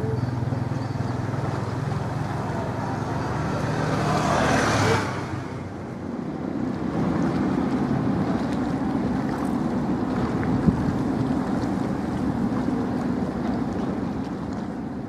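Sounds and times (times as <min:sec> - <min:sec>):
choppy water washing: 0:00.0 - 0:15.0
low engine drone: 0:00.0 - 0:15.0
wind noise on microphone: 0:06.3 - 0:15.0.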